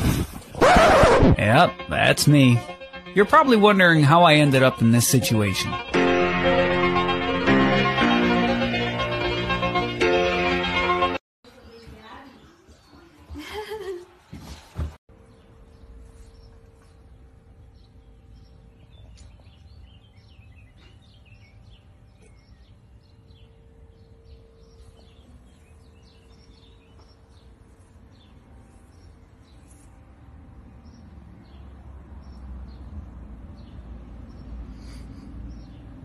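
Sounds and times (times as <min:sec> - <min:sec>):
small birds chirping: 0:11.5 - 0:13.8, 0:15.2 - 0:30.0, 0:30.7 - 0:36.0.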